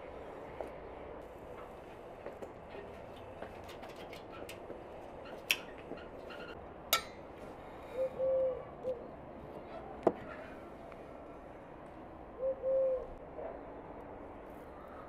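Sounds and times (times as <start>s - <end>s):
bird hooting coos: 7.8s - 9.2s, 12.4s - 13.6s.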